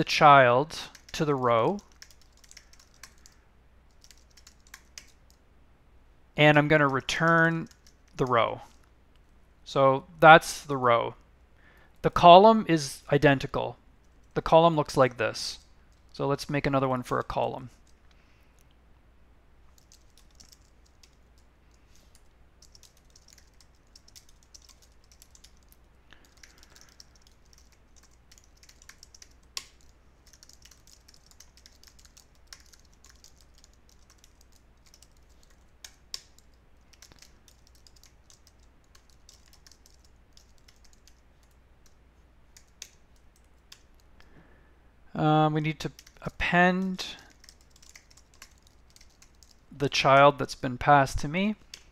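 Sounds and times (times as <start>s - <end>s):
faint keyboard typing: 0.7s - 5.4s, 6.5s - 9.3s, 14.0s - 16.2s, 17.2s - 18.8s, 19.6s - 44.3s, 45.8s - 50.3s, 51.4s - 51.9s.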